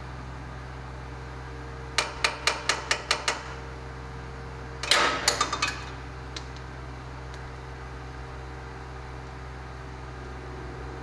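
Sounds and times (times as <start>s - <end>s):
metal tool and bolt clinking: 4.8s - 6.6s.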